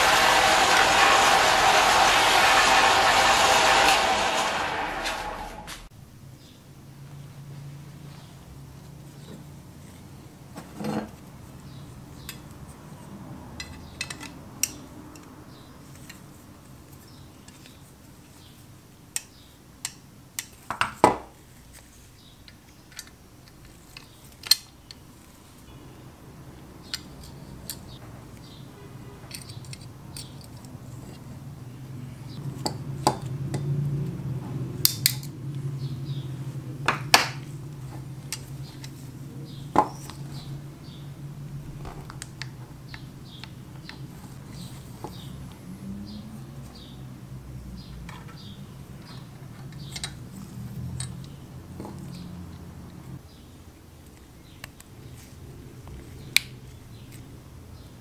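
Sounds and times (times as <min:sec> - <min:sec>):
low hum: 0:00.0 - 0:06.2
small metal parts clicking: 0:22.4 - 0:25.0, 0:29.3 - 0:30.8.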